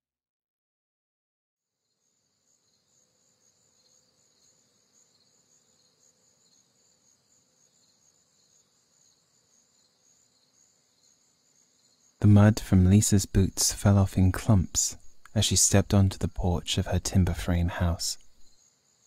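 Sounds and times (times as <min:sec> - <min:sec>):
crickets chirring: 0:01.8 - 0:12.4.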